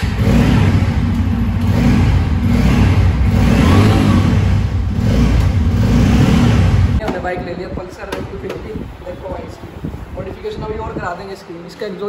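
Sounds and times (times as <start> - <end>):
motorcycle engine running: 0.0 - 7.0.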